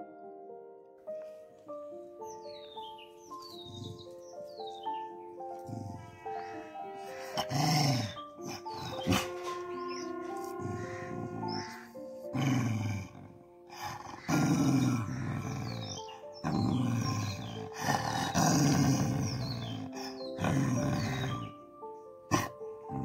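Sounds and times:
background music with sustained notes: 0.0 - 23.0
dog growling low: 3.4 - 4.2, 5.4 - 21.5, 22.3 - 23.0.

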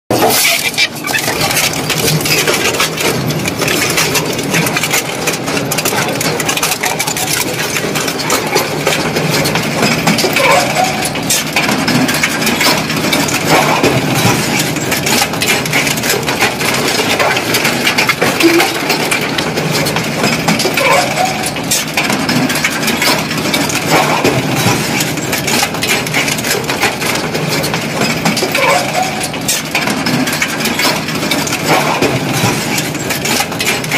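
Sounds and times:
metal screeches: 0.1 - 2.6, 20.8 - 21.8, 28.5 - 29.6
shredder crushing metal clatter: 0.1 - 33.9.

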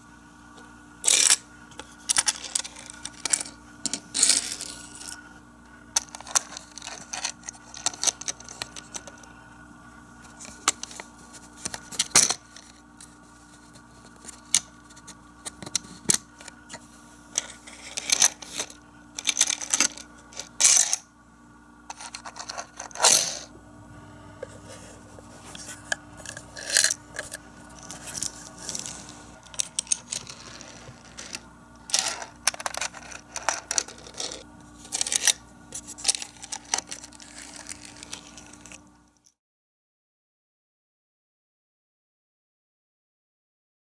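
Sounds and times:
toy cars rolling on plastic track: 1.0 - 1.4, 2.1 - 5.2, 6.0 - 9.3, 17.4 - 21.0, 21.9 - 23.5, 26.2 - 38.8
plastic toy clicks and rattles: 6.0 - 9.2, 17.4 - 21.0, 26.2 - 38.8.

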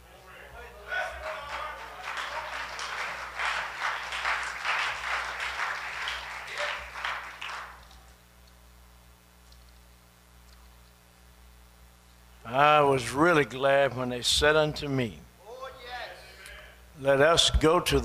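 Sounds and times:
congregation applauding: 0.3 - 8.1.

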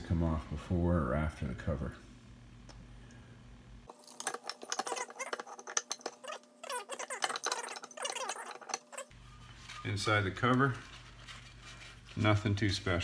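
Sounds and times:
metal scrapes and clinks: 4.0 - 12.2.

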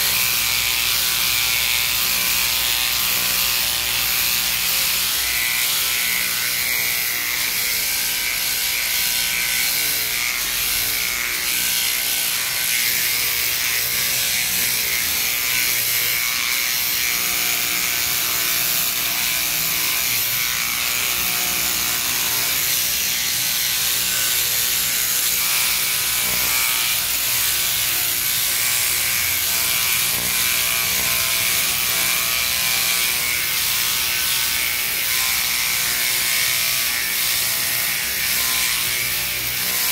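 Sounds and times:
sheep shearing machine running: 0.0 - 39.9.

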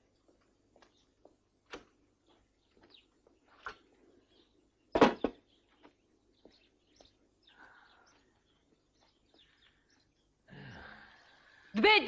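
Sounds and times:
faint bird chirps: 2.2 - 11.8.

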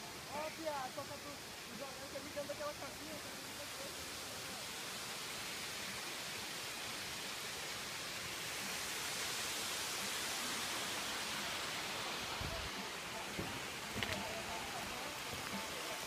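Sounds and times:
distant waterfall rushing: 0.0 - 16.0.

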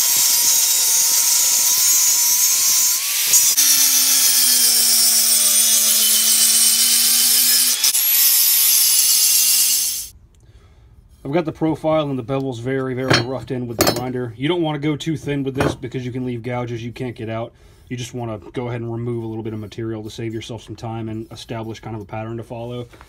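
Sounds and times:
angle grinder grinding steel: 0.0 - 10.1.

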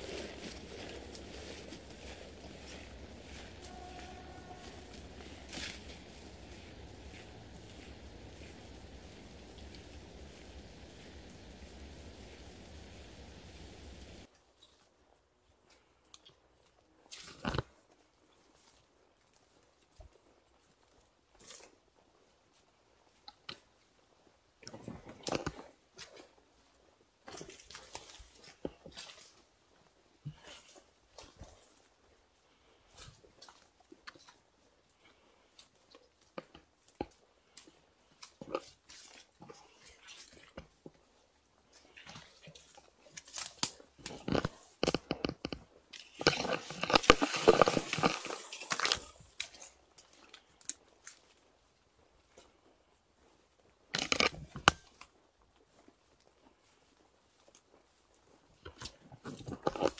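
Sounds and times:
leaves brushing: 0.0 - 14.3, 37.4 - 45.0, 45.8 - 51.5
rubber suit rustling: 0.0 - 14.3
corn leaves rustling and crackling: 0.0 - 59.9.

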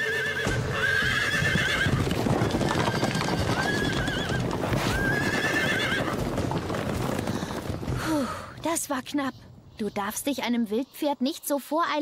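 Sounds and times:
horses whinnying: 0.0 - 8.4
horses galloping hoofbeats: 0.0 - 9.7.

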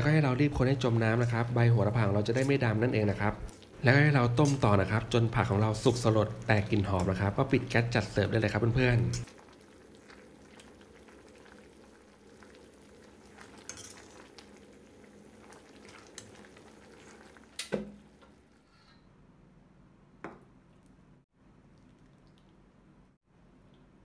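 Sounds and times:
curry bubbling in a pot: 0.0 - 18.6.

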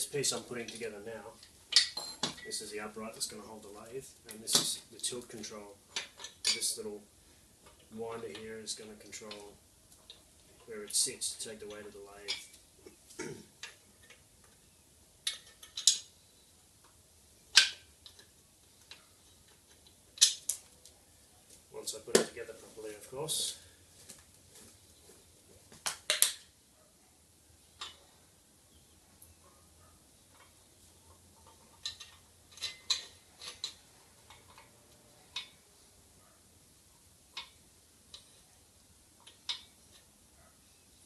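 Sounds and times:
metal parts clicking: 15.2 - 16.1, 30.3 - 34.7.

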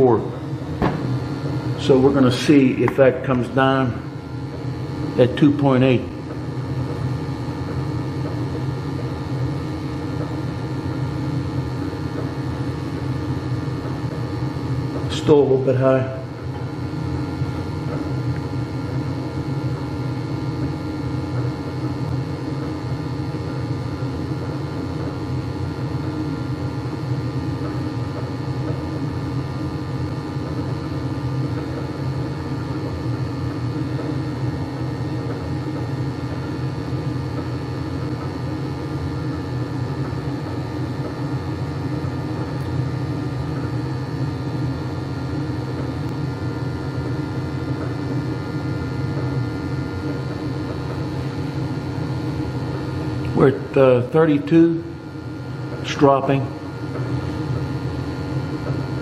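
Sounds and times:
boiler burner rumble and hum: 0.0 - 59.0
faint high whine: 37.1 - 59.0.

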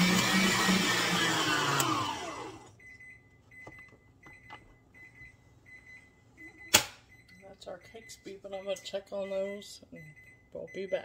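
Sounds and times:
electric mixer whining: 0.0 - 2.7
oven timer beeping: 1.7 - 11.0.

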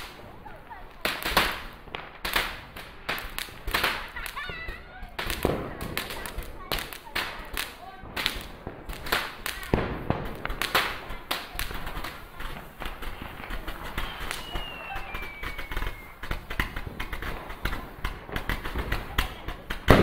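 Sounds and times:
fireworks bangs and crackles: 0.0 - 20.0
falling whistle: 14.0 - 16.2.

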